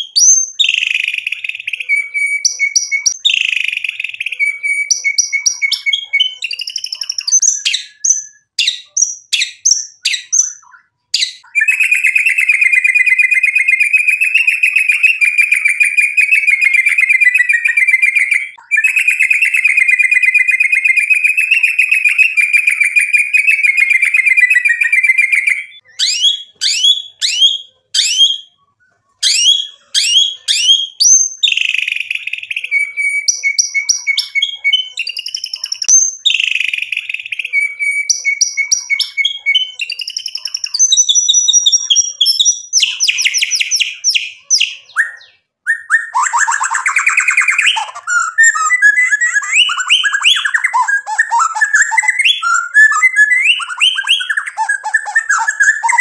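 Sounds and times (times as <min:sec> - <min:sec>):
bird singing whistled notes: 0:00.0 - 0:56.0
bird rapid trill: 0:29.2 - 0:56.0.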